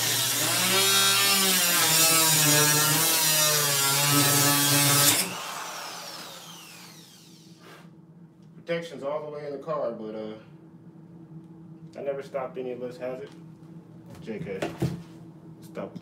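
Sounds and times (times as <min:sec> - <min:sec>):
angle grinder cutting metal: 0:00.0 - 0:07.5
grinder spinning down whine: 0:05.0 - 0:07.6.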